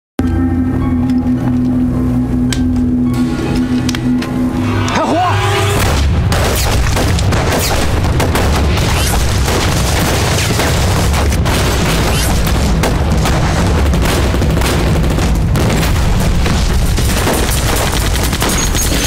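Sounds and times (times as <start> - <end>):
deep rumble: 0.2 - 19.0
booms: 5.7 - 19.0
rifle and pistol shots: 5.8 - 19.0.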